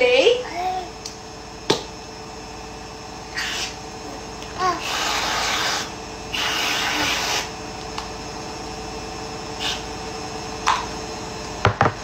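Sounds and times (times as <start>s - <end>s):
whipped-cream can spraying: 4.8s - 7.5s.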